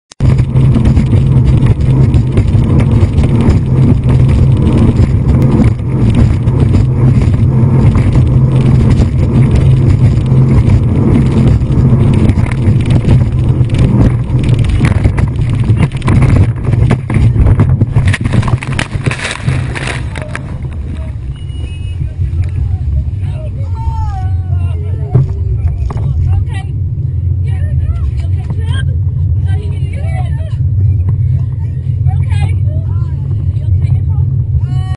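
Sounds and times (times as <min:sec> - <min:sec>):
rushing wind and water: 0:00.2 - 0:34.9
speedboat engine droning: 0:00.2 - 0:34.9
water splashing over boat: 0:00.3 - 0:22.0.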